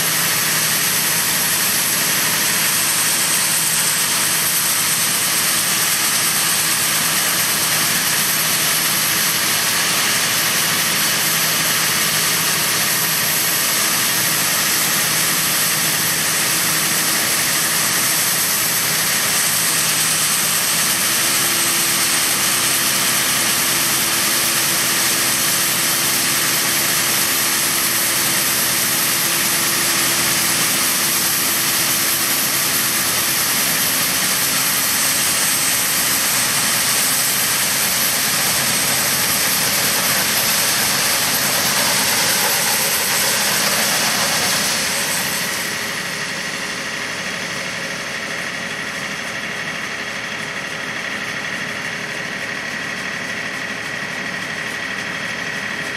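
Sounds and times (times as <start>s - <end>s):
grain pouring into hopper: 0.0s - 55.9s
tractor engine hum: 18.1s - 52.4s.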